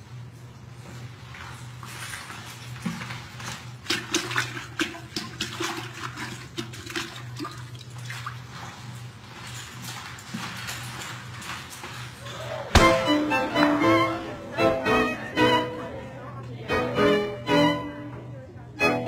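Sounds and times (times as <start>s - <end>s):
water splashing and sloshing: 0.9s - 13.0s.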